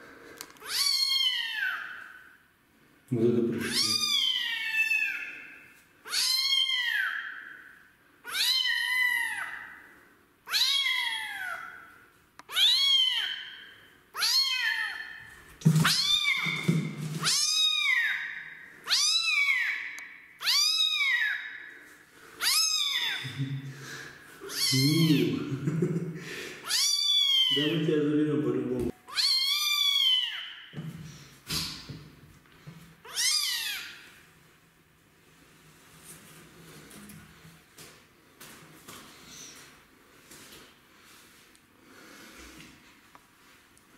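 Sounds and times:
kitten meowing: 0.6s - 2.0s, 3.6s - 5.3s, 6.0s - 7.3s, 8.3s - 9.6s, 10.5s - 11.7s, 12.5s - 13.5s, 14.2s - 15.1s, 15.8s - 18.2s, 18.9s - 19.8s, 20.4s - 21.4s, 22.4s - 23.3s, 24.4s - 25.4s, 26.6s - 27.8s, 29.1s - 30.6s, 33.0s - 34.0s.

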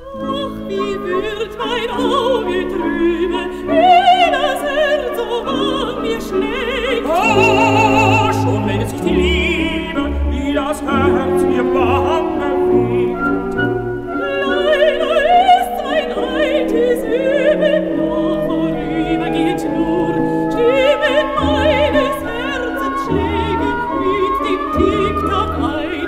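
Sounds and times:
person singing with vibrato: 0.0s - 26.0s
orchestra playing sustained chords: 7.1s - 14.0s.

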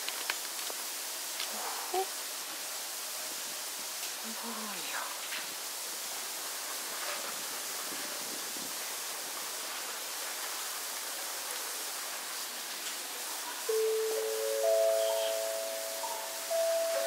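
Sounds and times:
background hiss: 0.0s - 17.0s
sustained musical tone: 13.7s - 17.0s.

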